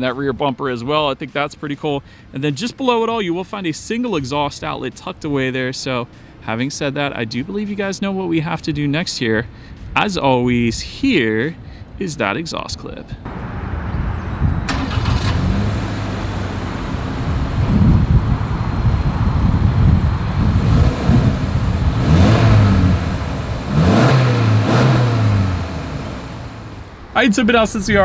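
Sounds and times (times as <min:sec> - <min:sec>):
car engine revving: 0:13.3 - 0:27.1.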